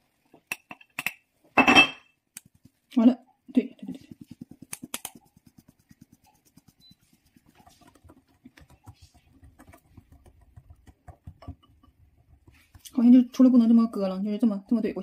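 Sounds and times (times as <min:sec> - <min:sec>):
sieve tapping sifting flour: 0:02.3 - 0:15.0
whisk scraping a bowl: 0:03.8 - 0:15.0.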